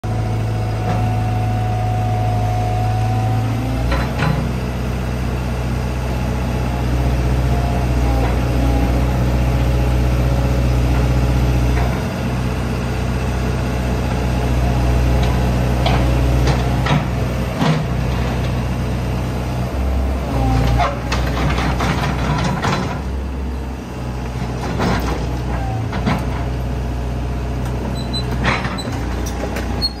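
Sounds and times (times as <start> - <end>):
excavator diesel engine humming: 0.1 - 30.0
metal clanks and knocks: 20.7 - 23.1.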